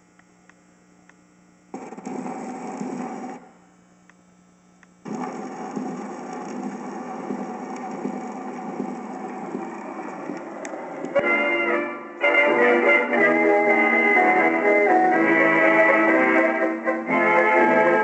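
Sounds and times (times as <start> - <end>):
record surface hiss and crackle: 0.0 - 18.0
recorded music: 5.0 - 18.0.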